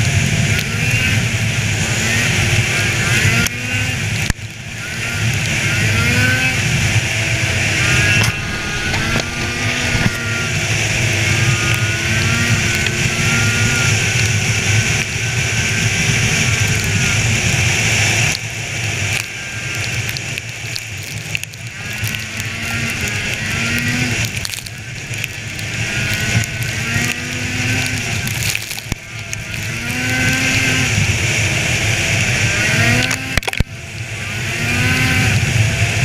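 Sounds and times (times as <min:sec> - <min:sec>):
snowmobile engine running: 0:00.0 - 0:36.0
wind rushing: 0:07.2 - 0:11.3.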